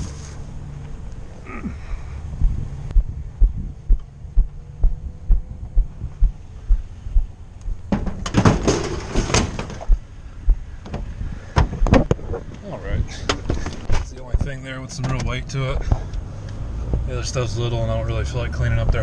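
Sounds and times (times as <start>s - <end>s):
footsteps dull low thumps: 2.3s - 8.2s, 9.4s - 12.5s, 18.7s - 19.0s
clattering and rustling: 7.9s - 9.9s, 13.1s - 14.1s.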